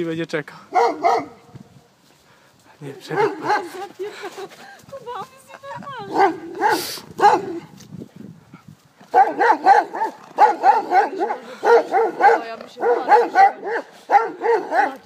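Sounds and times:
dog barking: 0.7 - 1.4, 3.0 - 3.8, 6.1 - 7.7, 9.1 - 15.0.

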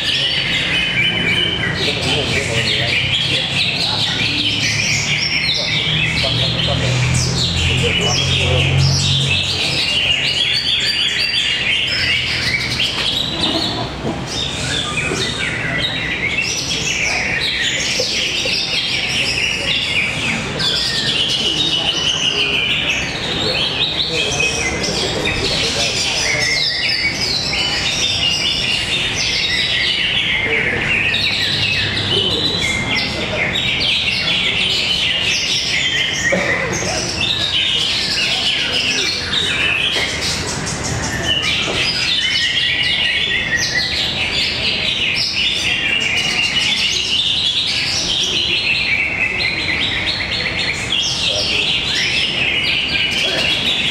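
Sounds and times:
birds chirping and trilling: 0.0 - 53.9.

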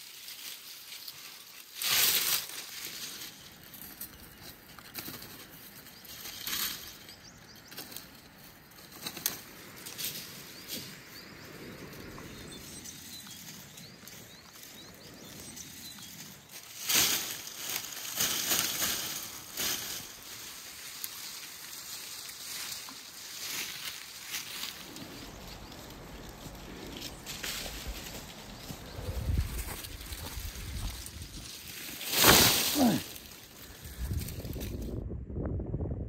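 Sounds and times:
dry branches and leaves rustling: 0.0 - 35.0
sharp cracks of branches: 1.7 - 3.2, 16.6 - 24.6, 29.5 - 34.8.

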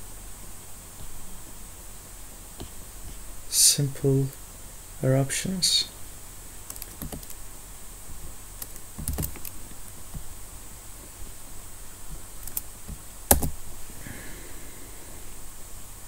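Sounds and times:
faint hum: 0.0 - 16.0
keyboard and mouse clicks: 6.7 - 7.4, 8.6 - 10.3, 12.4 - 13.6.

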